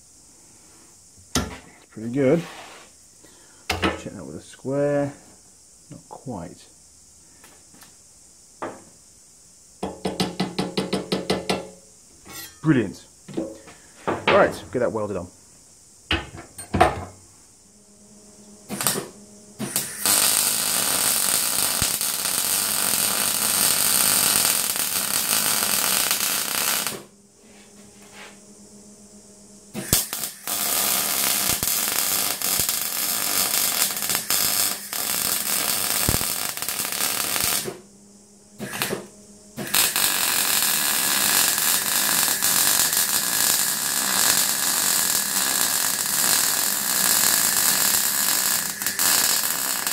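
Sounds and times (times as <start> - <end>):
welding arc burning: 18.6 - 27.1, 29.7 - 37.9, 38.6 - 49.9.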